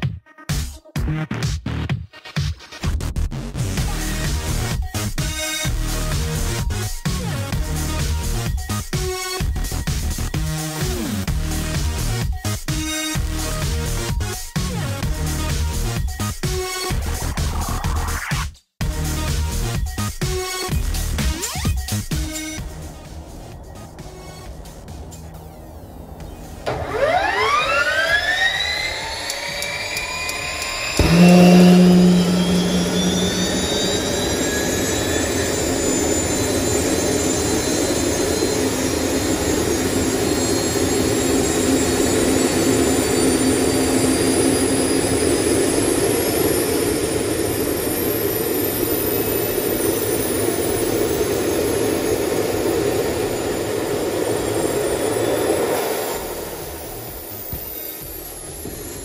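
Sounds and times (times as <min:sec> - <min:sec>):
turbine engine whine: 0:22.3 - 0:59.0
engine steady rush: 0:22.6 - 0:59.0.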